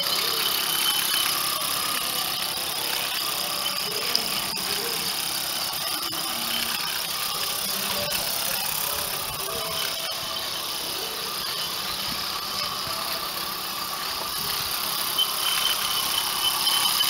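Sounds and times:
sharp clicks: 0:00.0 - 0:10.7
steam hissing: 0:00.0 - 0:17.0.

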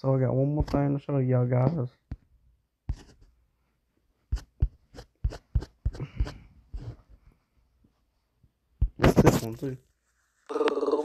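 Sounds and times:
fingers tapping a touchscreen: 0:04.3 - 0:06.9, 0:08.8 - 0:09.3.

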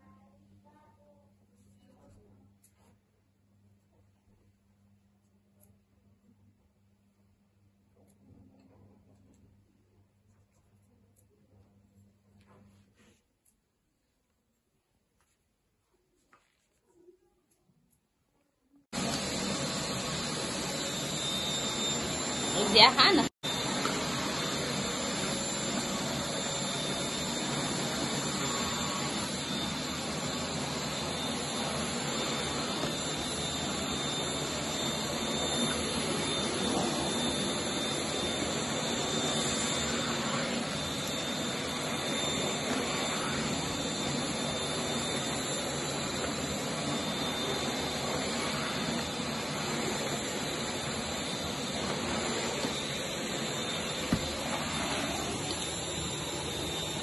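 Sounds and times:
stick vacuum running on rug: 0:18.9 - 0:57.0.

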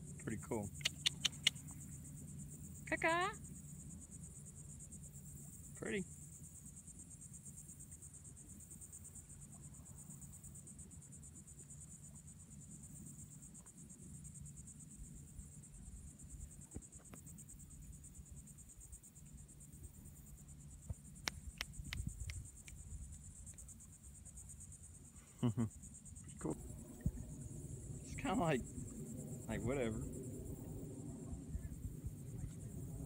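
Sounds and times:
insect chorus: 0:00.0 - 0:33.0
sharp clicks: 0:00.8 - 0:01.6, 0:21.2 - 0:22.8
low rumble: 0:26.5 - 0:33.0.

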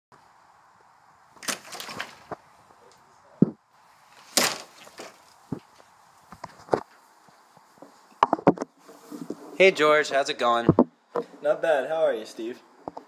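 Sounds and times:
dull thumps: 0:04.2 - 0:05.8.

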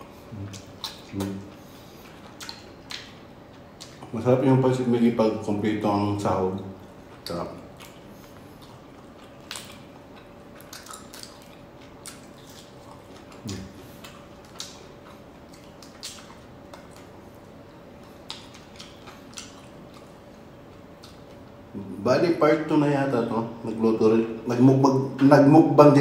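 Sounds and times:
chewing: 0:00.0 - 0:04.2, 0:06.7 - 0:21.7
faint steady hum: 0:00.0 - 0:26.0.

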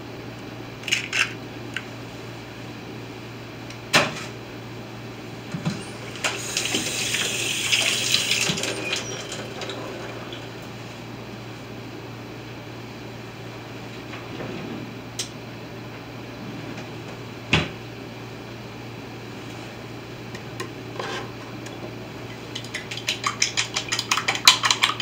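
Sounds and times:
whisk clicking against bowl: 0:22.4 - 0:25.0.

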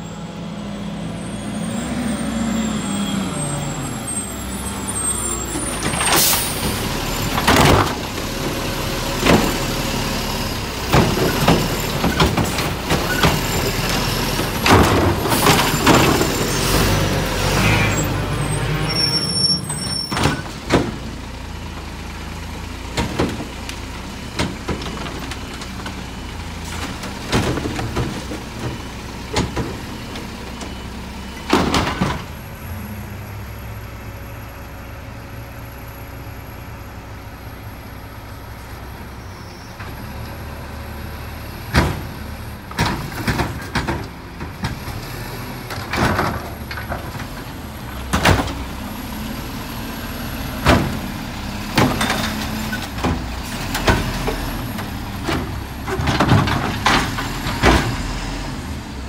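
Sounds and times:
garbage truck engine running: 0:00.0 - 0:59.0
clanks and knocks: 0:42.7 - 0:45.0, 0:51.8 - 0:58.1.

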